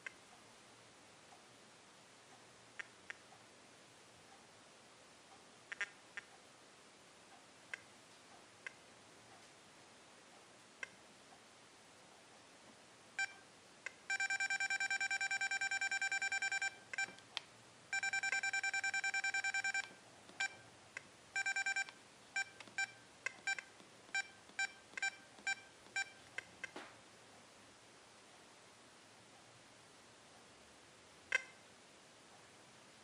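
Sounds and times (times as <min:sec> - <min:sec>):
remote control beeping: 0:14.1 - 0:17.3, 0:17.9 - 0:20.7, 0:21.4 - 0:26.8.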